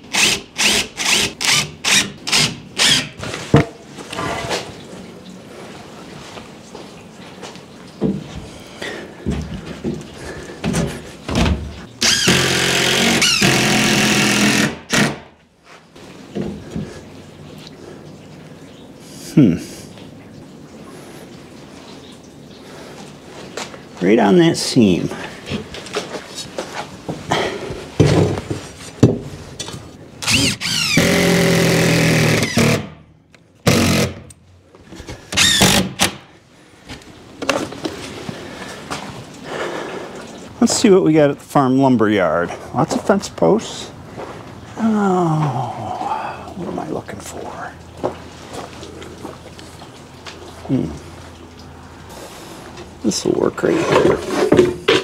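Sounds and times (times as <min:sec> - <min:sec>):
power tool motor whine: 0:12.0 - 0:15.1, 0:30.2 - 0:32.8.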